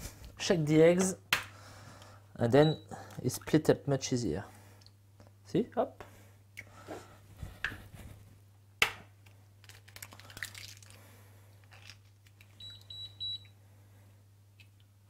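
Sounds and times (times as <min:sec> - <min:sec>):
eggshell cracking on bowl: 0:09.6 - 0:11.0.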